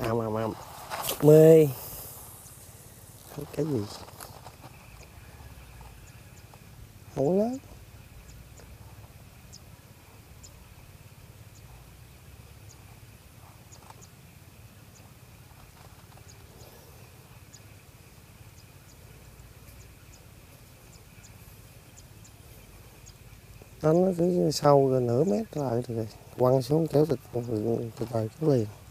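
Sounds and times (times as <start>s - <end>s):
tiny ticks: 13.7s - 14.1s.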